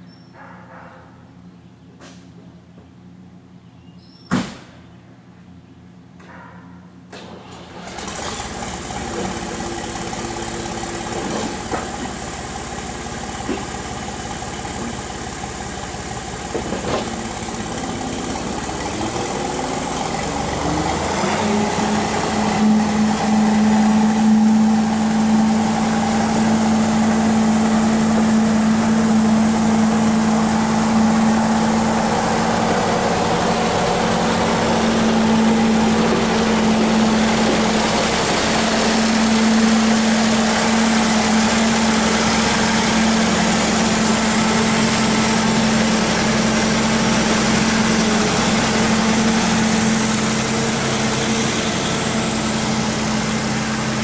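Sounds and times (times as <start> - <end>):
backhoe engine droning: 7.2 - 54.0.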